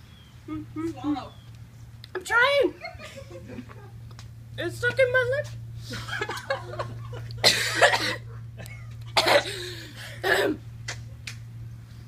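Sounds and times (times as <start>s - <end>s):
woman coughing: 7.4s - 8.4s, 9.2s - 10.6s.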